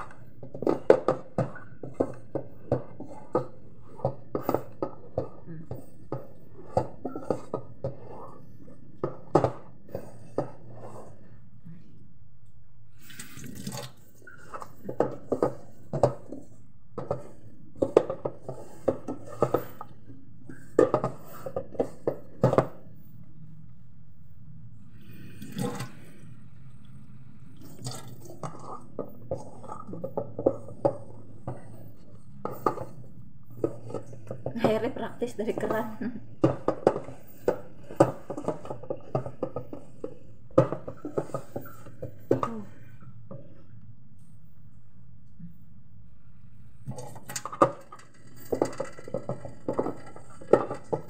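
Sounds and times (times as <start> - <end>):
dough slapping against metal pot: 0.0 - 10.9
hand kneading sticky mixture: 0.0 - 23.6.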